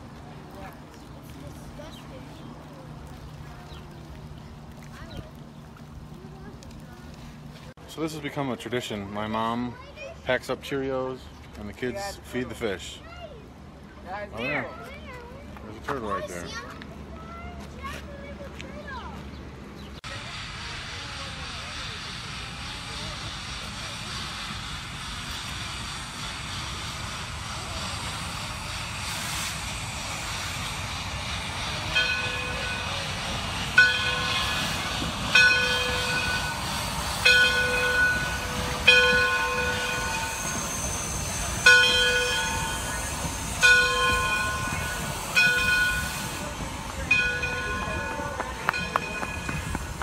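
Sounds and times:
train noise: 0.0 - 50.0
locomotive bell ringing: 31.8 - 50.0.

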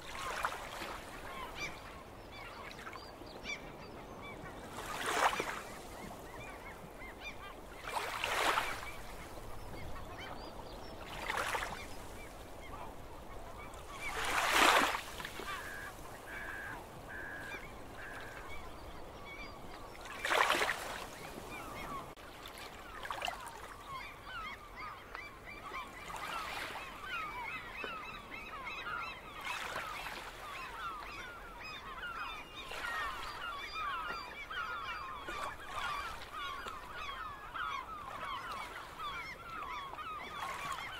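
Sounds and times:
birds calling: 0.1 - 40.9
small waves washing in: 4.7 - 6.6, 7.2 - 9.6, 10.9 - 18.6.

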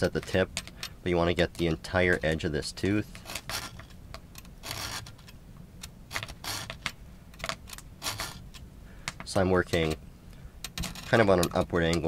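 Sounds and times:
file scraping saw teeth: 4.6 - 5.1.

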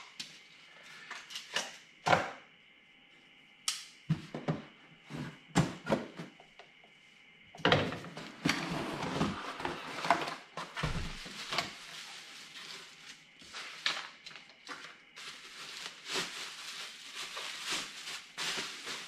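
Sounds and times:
cardboard rustling and scraping: 8.2 - 19.0.

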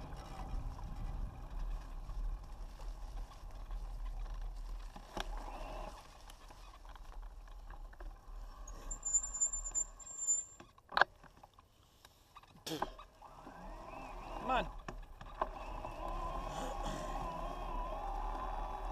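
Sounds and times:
small rattles and clicks: 0.0 - 12.2
bike tyres rolling on dirt: 0.0 - 18.9
thin high tone: 8.7 - 10.6.

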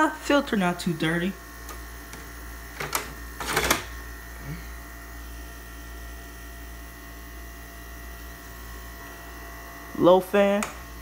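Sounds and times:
window air conditioner humming: 0.0 - 11.0.

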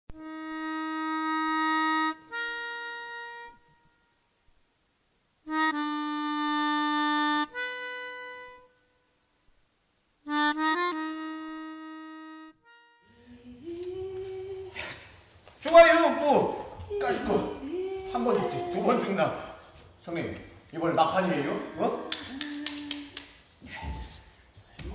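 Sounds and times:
free-reed instrument playing: 0.1 - 4.2, 5.5 - 9.0, 10.2 - 14.6.

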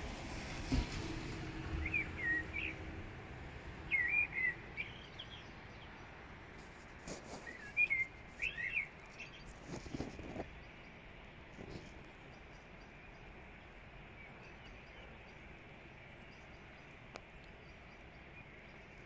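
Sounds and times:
songbird warbling: 3.8 - 5.8, 7.3 - 9.6.

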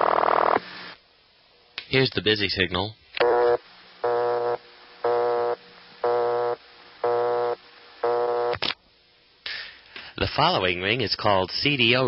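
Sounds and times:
telephone busy signal: 3.2 - 8.6.

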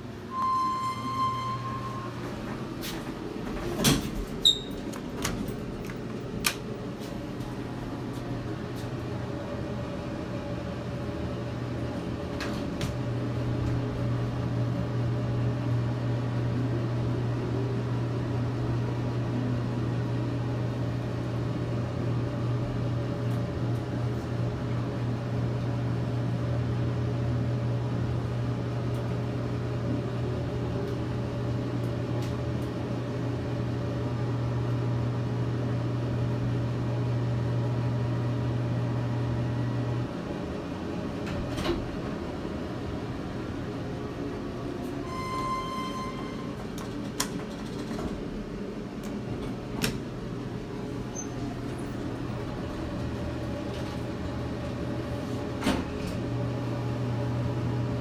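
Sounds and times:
elevator doors clunking shut: 0.0 - 6.7, 44.8 - 50.2
elevator beep: 0.3 - 2.5, 4.4 - 4.8, 45.0 - 46.8.

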